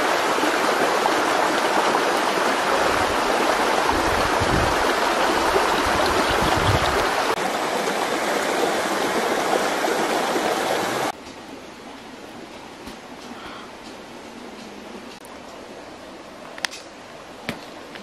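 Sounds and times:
stream water rushing over rocks: 0.0s - 11.2s.

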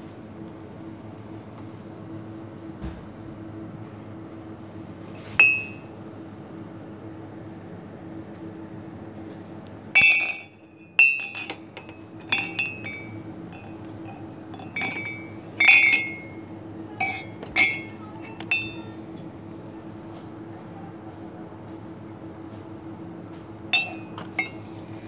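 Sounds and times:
ceramic mugs clinking: 5.4s - 5.8s, 10.0s - 19.0s, 23.8s - 24.7s.

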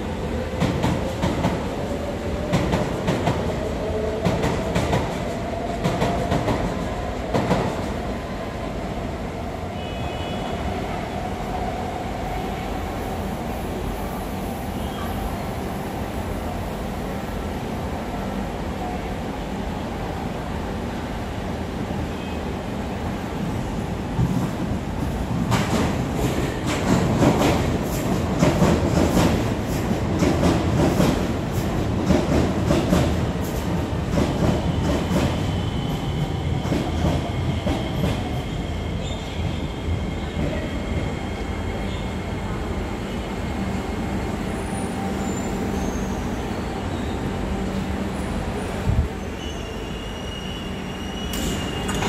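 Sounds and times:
train wheel squeal: 14.7s - 15.3s, 34.2s - 42.4s, 44.4s - 52.0s.

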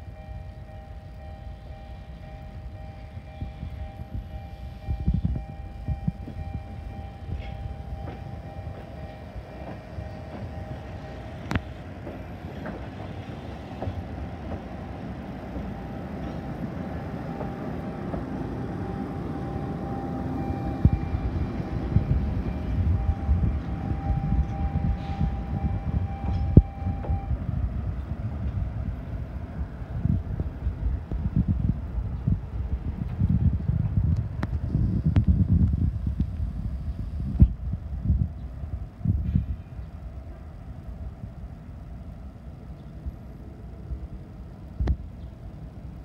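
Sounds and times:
tram rolling rumble and hum: 0.0s - 46.0s
wheels clacking over rail joints: 7.4s - 19.8s.

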